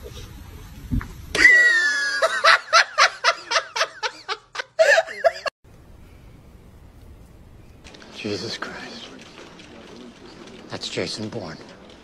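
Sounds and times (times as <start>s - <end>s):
person giggling: 1.4s - 5.5s.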